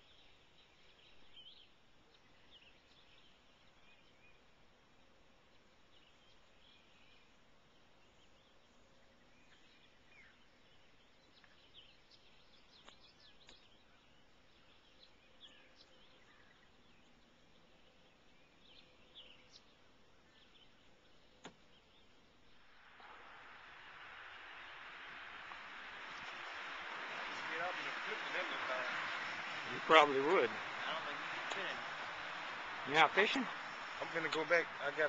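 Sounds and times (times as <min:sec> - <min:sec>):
faint bird chirps: 0:00.0 - 0:35.0.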